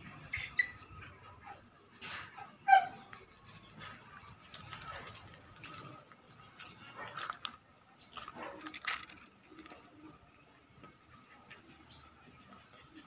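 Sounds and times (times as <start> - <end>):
high-pitched animal yelps: 0.4 - 3.1.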